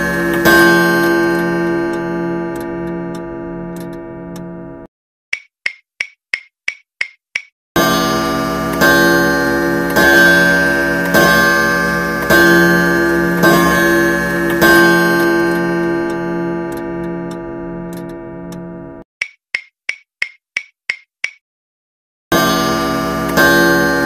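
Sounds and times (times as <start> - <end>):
sharp clock ticks: 0.0 - 4.5, 5.3 - 7.5, 9.8 - 11.5, 12.2 - 18.6, 19.2 - 21.4.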